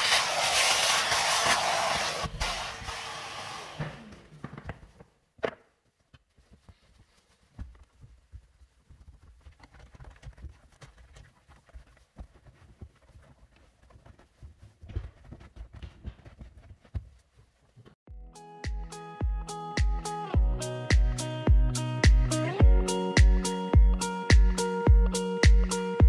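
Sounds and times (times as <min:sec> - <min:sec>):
vacuum cleaner running: 0:00.0 - 0:04.3.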